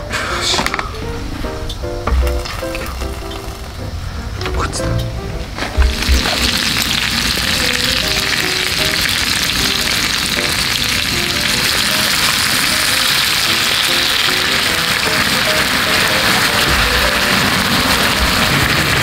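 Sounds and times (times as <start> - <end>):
food sizzling in a frying pan: 5.8 - 19.0.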